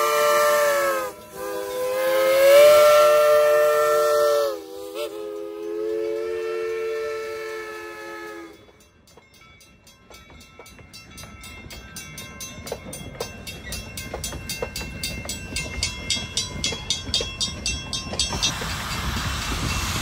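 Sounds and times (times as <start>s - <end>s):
crossing bell ringing: 0.0s - 20.0s
rumble of rolling railcars: 0.0s - 20.0s
train wheels clicking over rail joints: 0.0s - 20.0s
loud hiss: 18.4s - 20.0s.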